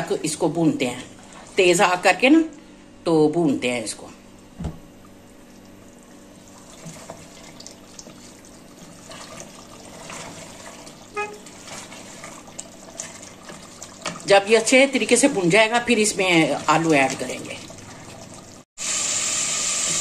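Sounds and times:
curry sizzling and bubbling: 4.9 - 20.0
wooden spatula scraping pot: 8.8 - 14.4.

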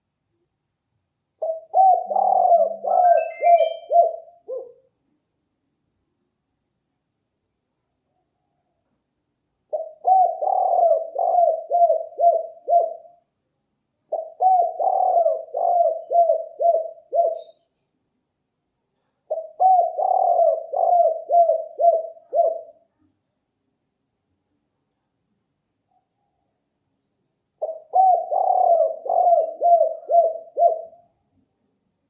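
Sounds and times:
dove cooing: 1.4 - 4.9, 9.7 - 13.2, 14.1 - 17.6, 19.3 - 22.9, 27.6 - 31.1.

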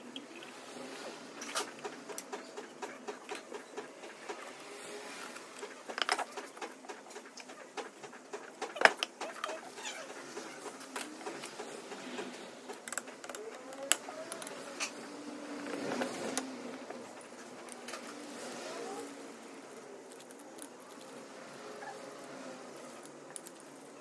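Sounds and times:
tools and metal parts clicking: 5.6 - 6.6.

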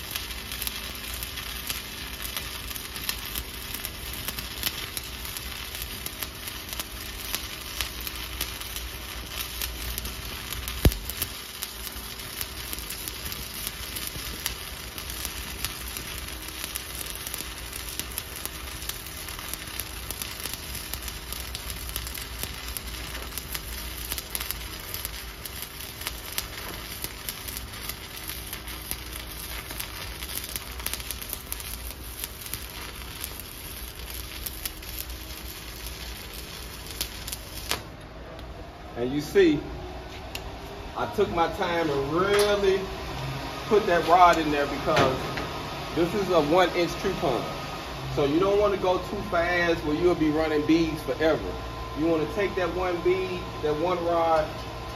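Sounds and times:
welding arc pop: 0.0 - 38.5, 42.3 - 42.6, 44.0 - 45.7
welding arc crackling sizzle: 0.0 - 54.9.

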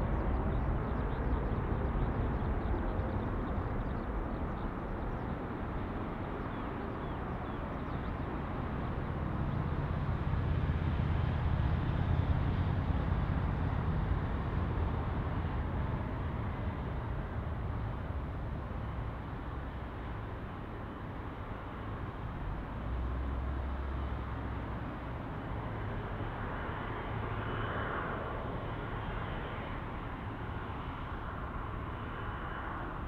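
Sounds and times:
jet airliner landing rumble: 0.0 - 33.0.

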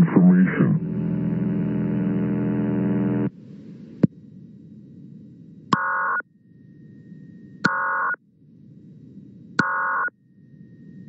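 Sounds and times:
radio static hiss: 0.0 - 4.1.

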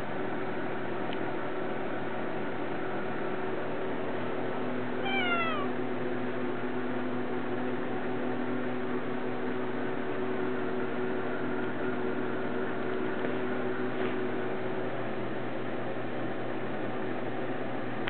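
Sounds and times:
background hum: 0.0 - 18.0
kitten meowing: 5.0 - 5.8.

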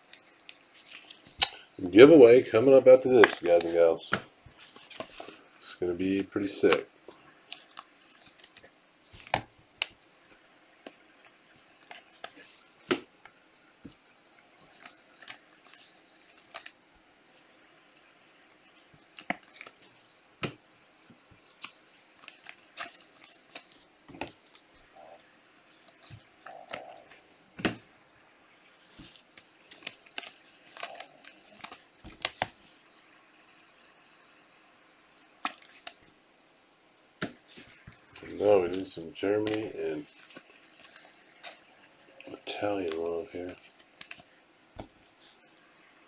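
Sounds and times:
cards clicking and snapping: 3.1 - 5.4, 18.7 - 19.8, 28.9 - 32.7, 35.4 - 36.0, 37.2 - 41.7, 42.3 - 45.5
card packs being torn open: 28.9 - 32.6, 38.2 - 41.6, 42.3 - 44.2.

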